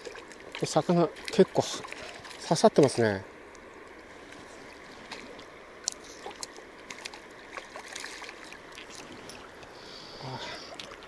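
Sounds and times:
river water lapping and flowing: 0.0 - 11.0
fish thrashing and splashing: 4.2 - 9.6.

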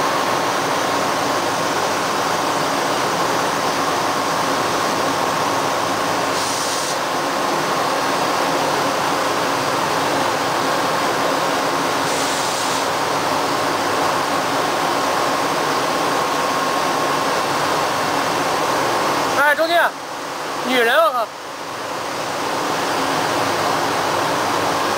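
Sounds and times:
brief high hiss: 6.3 - 7.1, 12.0 - 13.0.

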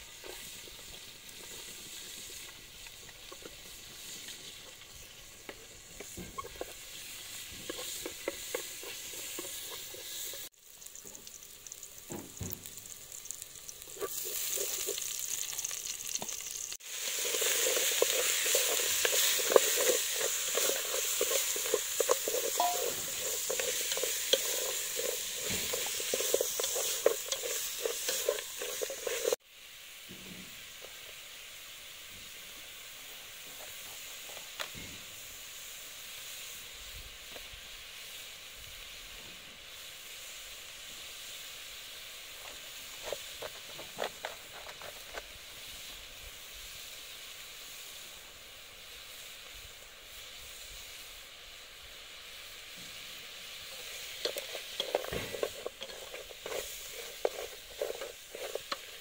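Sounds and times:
food sizzling: 0.0 - 59.0
stirring clicks and scrapes: 0.2 - 11.9, 12.8 - 29.4, 42.4 - 45.3, 53.5 - 59.0.

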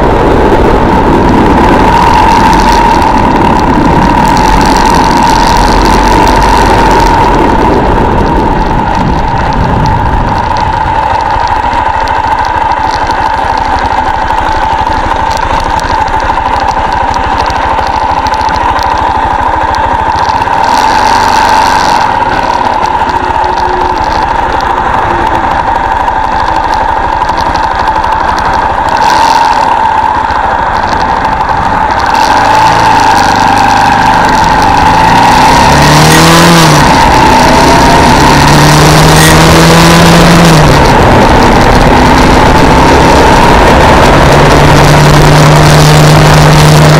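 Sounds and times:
wind rush: 0.0 - 13.3
motorcycle engine running: 0.0 - 46.9.

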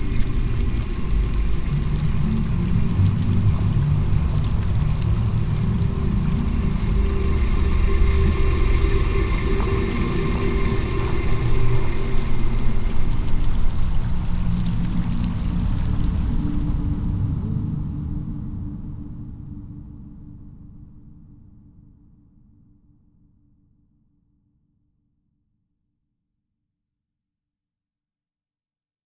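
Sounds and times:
water rushing: 0.0 - 18.4.

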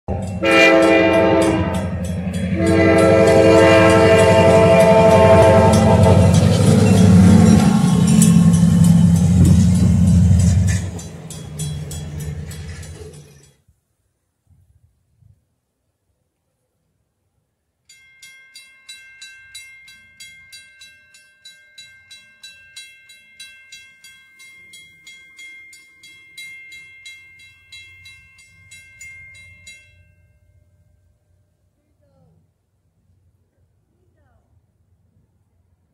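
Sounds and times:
crossing bell ringing: 0.1 - 13.6, 17.9 - 31.5.

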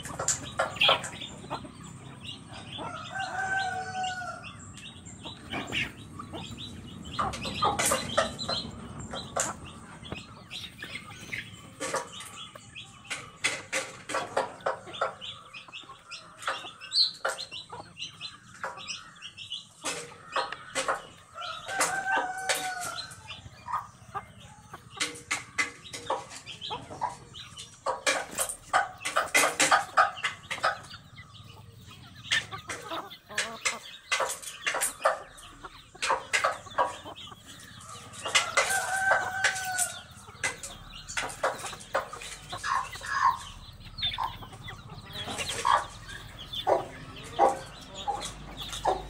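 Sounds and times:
chickens clucking: 0.0 - 49.0.

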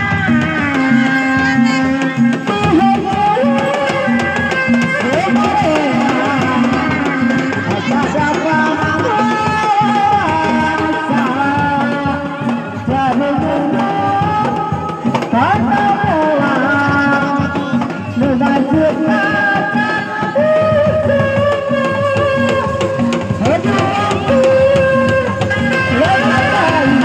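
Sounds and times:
hand drums: 0.0 - 27.0.

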